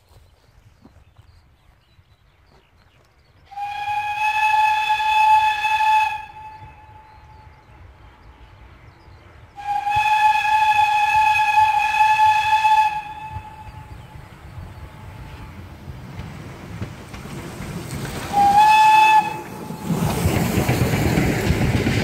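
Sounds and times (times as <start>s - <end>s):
steam locomotive whistle blasts: 3.5s - 7.4s, 9.6s - 14.0s, 18.3s - 19.8s.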